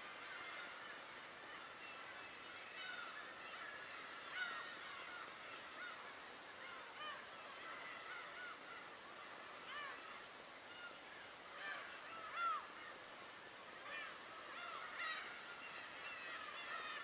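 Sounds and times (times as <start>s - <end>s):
gulls calling: 0.1s - 17.0s.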